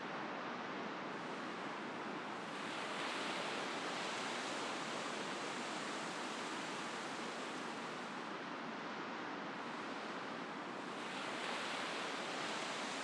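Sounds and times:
ocean surf breaking on beach: 0:09.6 - 0:13.0.

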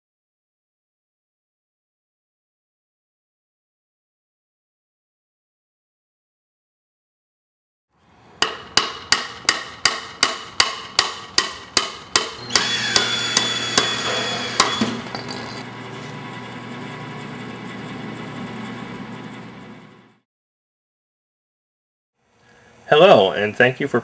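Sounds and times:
hammer striking wood: 0:08.4 - 0:15.4
machine hum with whine: 0:12.3 - 0:20.2.

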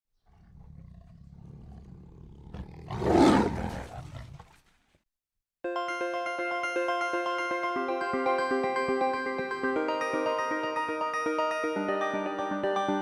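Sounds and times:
large animal roaring: 0:00.2 - 0:04.6.

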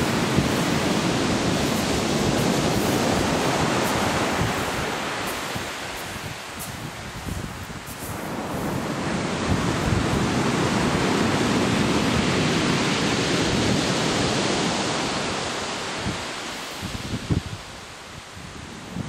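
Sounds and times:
waves breaking on shingle: 0:00.0 - 0:08.3
wind buffeting microphone: 0:00.0 - 0:14.8, 0:16.8 - 0:17.7.

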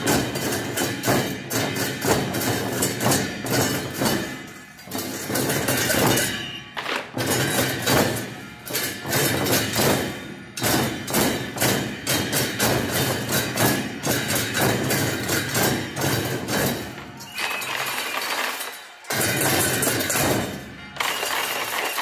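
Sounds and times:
barrel drums beaten with sticks: 0:00.0 - 0:17.3, 0:19.1 - 0:20.8.

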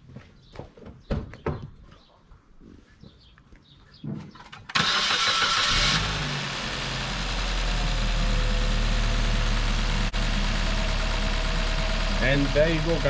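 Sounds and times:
car engine starting and idling: 0:04.6 - 0:13.0.

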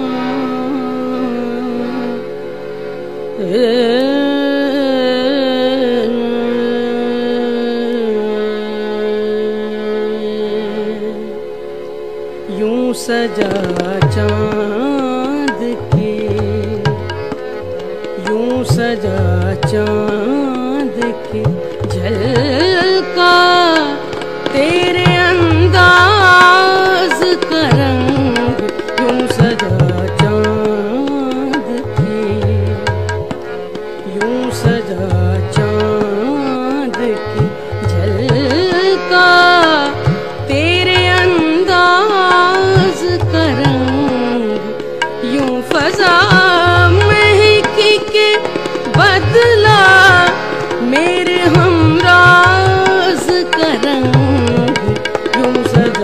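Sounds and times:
woman singing: 0:00.0 - 0:02.3, 0:03.4 - 0:11.4, 0:12.5 - 0:33.4, 0:34.0 - 0:56.0
tabla beat: 0:13.2 - 0:56.0.

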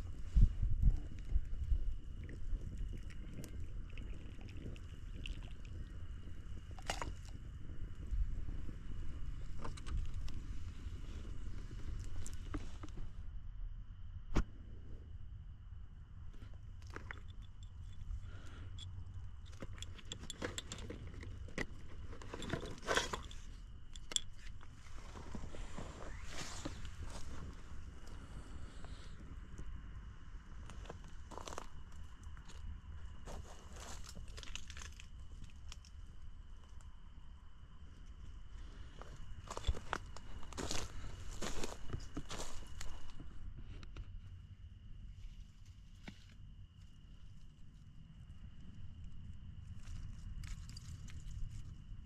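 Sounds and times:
low steady rumble: 0:00.0 - 0:52.0
campfire crackling and popping: 0:00.8 - 0:12.6.

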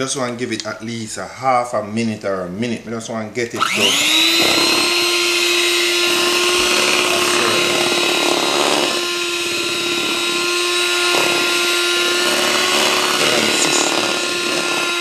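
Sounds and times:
electric mixer running: 0:03.6 - 0:15.0.

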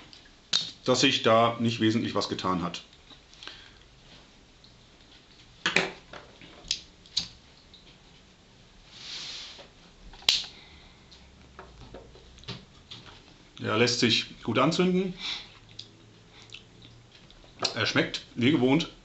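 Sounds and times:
soft breathy hiss: 0:03.3 - 0:04.5, 0:08.8 - 0:11.4, 0:15.0 - 0:16.6.

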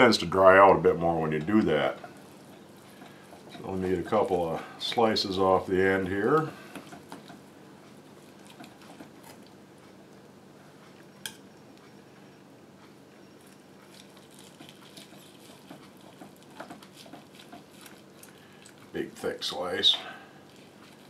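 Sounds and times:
steady low hum: 0:00.0 - 0:21.0
knife carving meat: 0:08.0 - 0:09.5, 0:13.4 - 0:19.0, 0:20.2 - 0:21.0.

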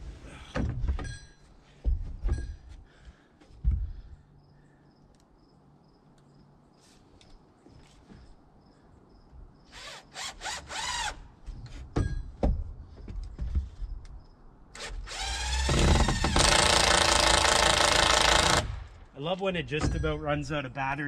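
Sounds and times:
cordless drill driving screws: 0:09.7 - 0:11.2, 0:14.8 - 0:18.8.

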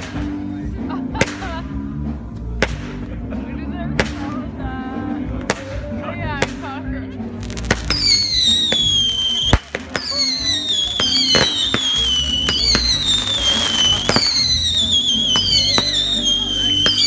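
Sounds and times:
firework shells bursting: 0:07.4 - 0:17.0
firework whistles falling in pitch: 0:07.7 - 0:17.0.

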